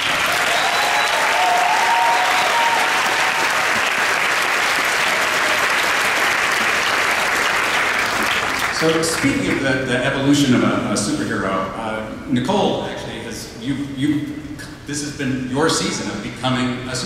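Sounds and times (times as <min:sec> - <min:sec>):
people cheering: 0:00.0 - 0:09.4
audience applauding: 0:00.0 - 0:09.6.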